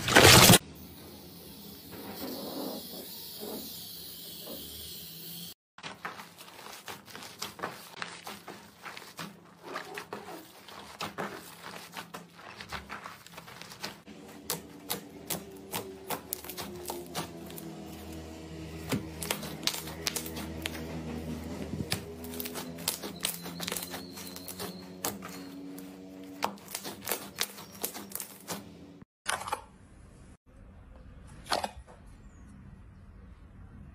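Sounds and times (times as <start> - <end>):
slime crackling and popping: 6.6 - 21.0, 21.8 - 25.4.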